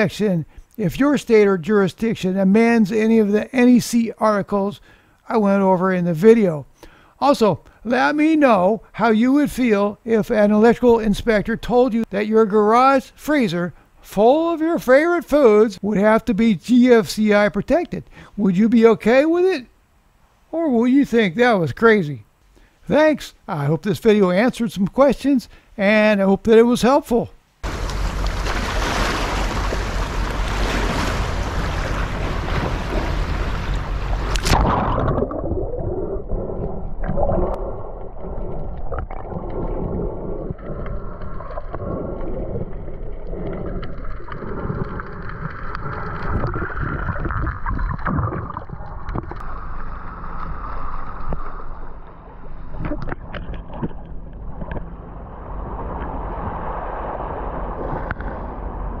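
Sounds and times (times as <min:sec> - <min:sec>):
surf splashing: 0:27.6 - 0:59.0
underwater gurgling: 0:27.6 - 0:59.0
underwater clicks and knocks: 0:38.4 - 0:49.5, 0:52.7 - 0:55.1.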